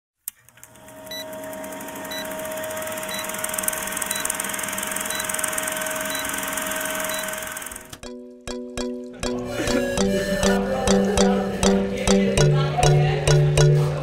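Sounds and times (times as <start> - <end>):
film projector whir and hiss: 0.4 - 8.0.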